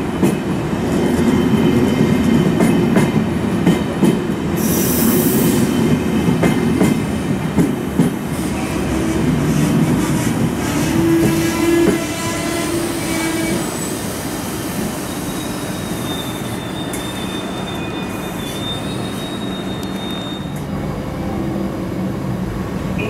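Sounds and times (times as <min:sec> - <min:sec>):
train rolling with steady rumble: 0:00.0 - 0:23.0
train wheels squealing: 0:11.2 - 0:20.6.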